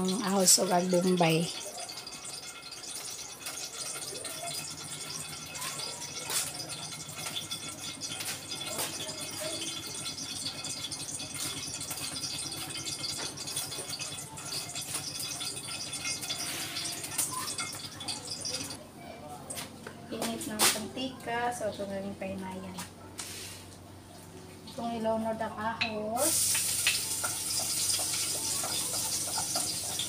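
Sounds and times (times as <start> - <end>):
oil crackling and spitting in pan: 0.0 - 18.8, 26.2 - 30.0.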